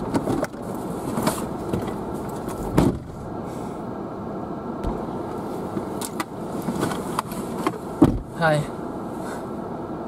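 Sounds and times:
car door opening: 0.0 - 3.3, 4.8 - 8.5
car door slamming: 2.6 - 3.3, 4.8 - 5.1, 7.7 - 8.4.

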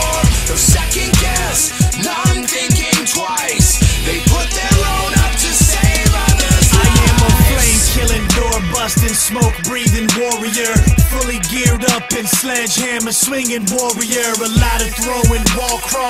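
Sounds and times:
rapping over hip hop beat: 0.0 - 16.0
deep sliding bass notes: 3.9 - 10.1.

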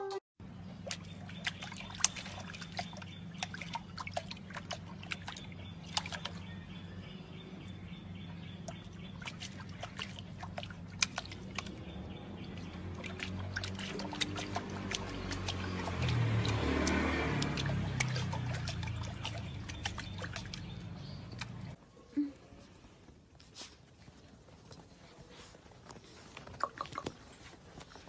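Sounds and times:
puppy lapping water: 0.8 - 6.8, 8.4 - 21.8, 26.2 - 27.9.

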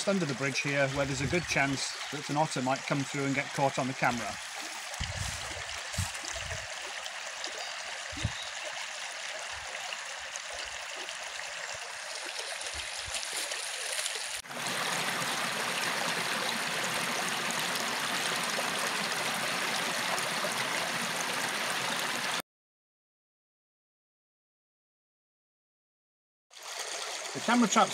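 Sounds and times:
stream rushing over stones: 0.0 - 22.4, 26.6 - 27.9.

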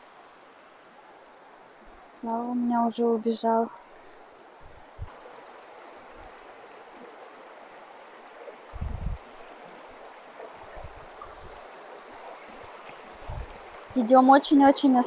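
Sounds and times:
river water rushing over stones: 3.8 - 15.0.

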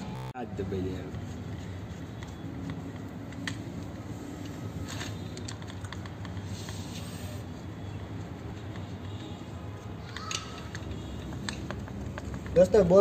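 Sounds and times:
steady low hum: 0.0 - 3.2.

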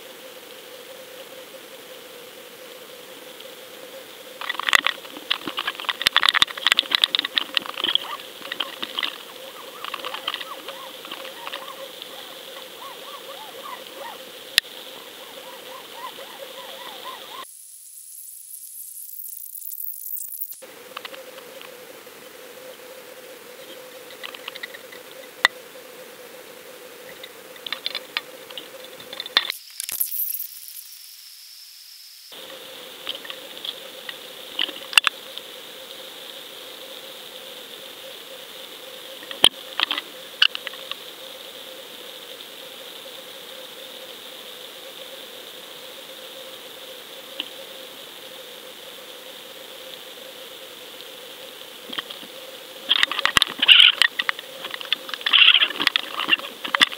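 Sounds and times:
faint hiss: 0.0 - 56.9
sharp rushing hiss: 3.4 - 22.0
sharp clicks and crackles: 4.4 - 17.4, 19.1 - 21.8, 24.1 - 25.6, 27.1 - 30.8, 33.0 - 36.0, 39.2 - 41.1, 51.8 - 56.9.

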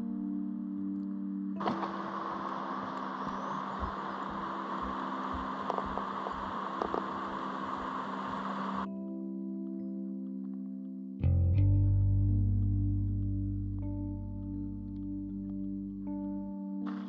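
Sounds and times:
water rushing over rocks: 1.6 - 8.9.

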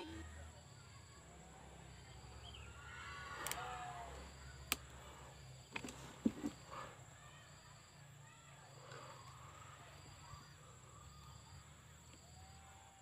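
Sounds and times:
sharp clicks: 3.4 - 3.6.

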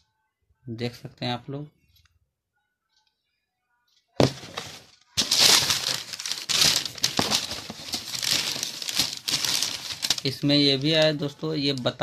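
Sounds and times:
packaging rustling and crinkling: 4.2 - 12.0.

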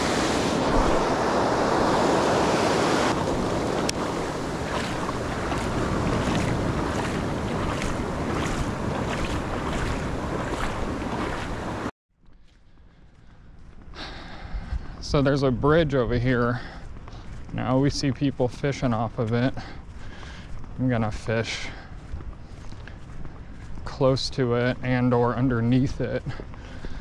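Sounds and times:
ocean surf: 0.0 - 11.9
wind buffeting microphone: 0.0 - 11.9.

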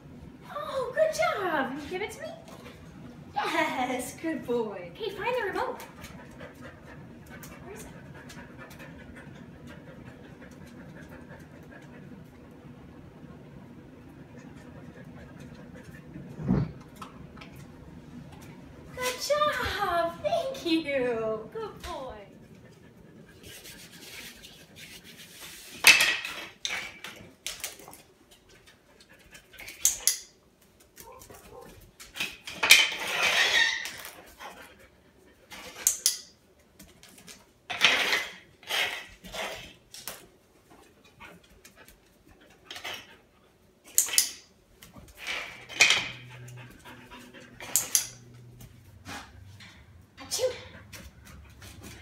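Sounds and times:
dog sniffing and panting: 5.8 - 12.6, 14.1 - 16.4, 22.3 - 25.8, 34.2 - 36.0, 46.1 - 52.0.

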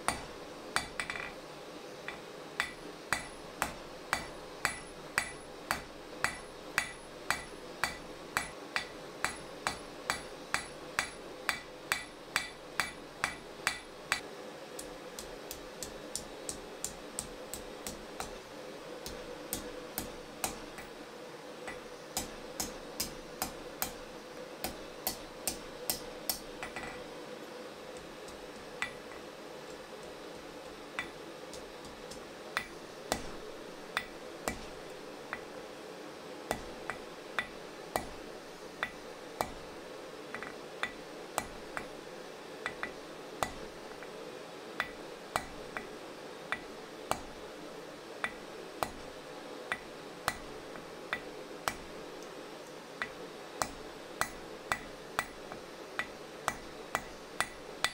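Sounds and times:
hammer striking metal on anvil: 0.0 - 1.4, 2.1 - 14.2, 21.7 - 24.0, 24.6 - 27.0, 31.0 - 33.4, 36.5 - 38.2, 42.6 - 43.7, 53.0 - 57.9
steady hum: 0.0 - 57.9.

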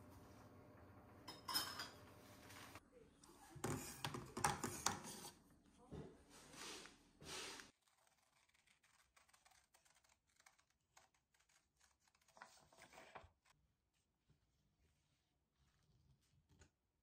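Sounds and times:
scissors snipping paper: 7.7 - 13.5.

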